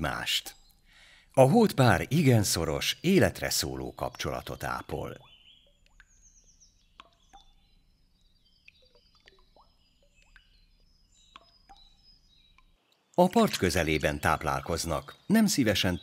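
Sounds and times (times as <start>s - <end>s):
faint bird chirps and whistles: 3.7s - 12.8s
small plops or clicks: 7.0s - 7.6s, 8.6s - 10.6s, 11.3s - 13.0s.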